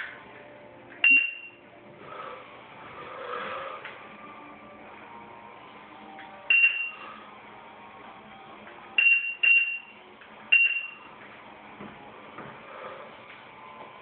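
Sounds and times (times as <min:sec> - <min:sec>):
short high beeps: 0:01.0 - 0:01.6, 0:06.5 - 0:07.0.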